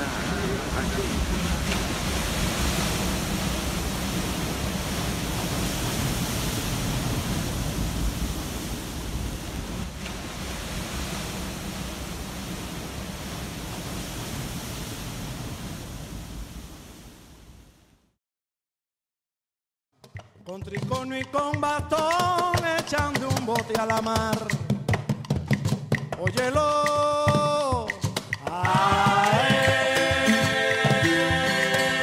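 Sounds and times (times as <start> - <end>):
wind buffeting microphone: 0.0 - 17.3
surf breaking against seawall: 0.0 - 17.4, 20.6 - 24.7, 25.4 - 32.0.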